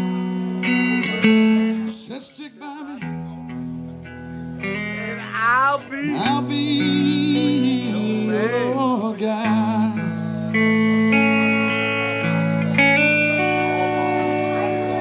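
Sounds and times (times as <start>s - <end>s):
electric guitar: 0.0s - 15.0s
person singing: 1.0s - 3.3s, 5.2s - 11.4s.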